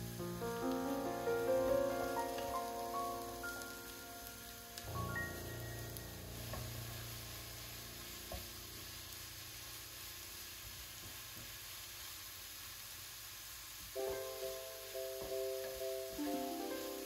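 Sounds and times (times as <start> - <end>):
vegetables sizzling in a frying pan: 0.0 - 17.0.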